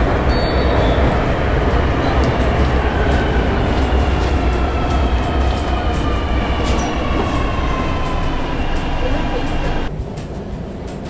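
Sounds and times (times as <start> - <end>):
subway train rumbling: 0.0 - 11.0.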